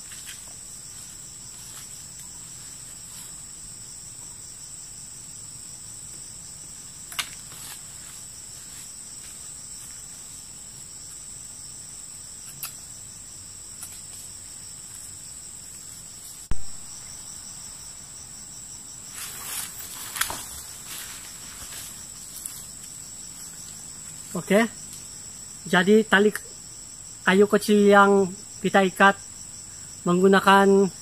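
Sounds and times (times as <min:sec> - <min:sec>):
insects chorus: 0:00.0 - 0:31.0
rustling: 0:07.1 - 0:11.2, 0:19.0 - 0:25.1.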